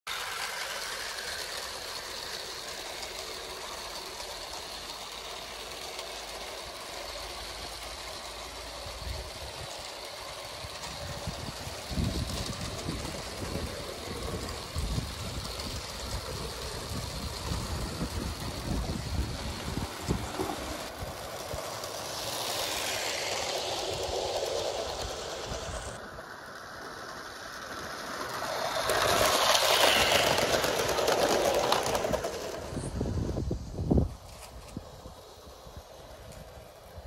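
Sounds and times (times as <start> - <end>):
model train running on track: 0.1 - 37.0
wind buffeting microphone: 10.6 - 21.6, 29.0 - 35.2.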